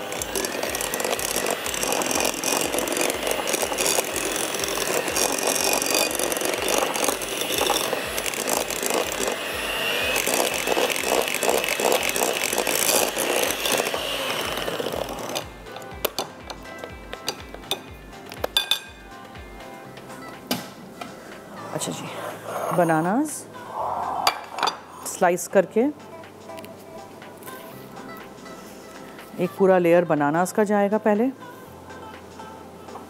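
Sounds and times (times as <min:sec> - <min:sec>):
electric hand mixer whirring: 0:00.0 - 0:17.7.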